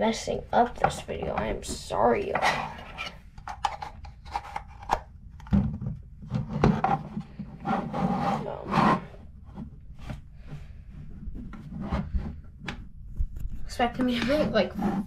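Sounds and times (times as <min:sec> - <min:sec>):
radio handled on wooden table: 0:02.3 - 0:07.2.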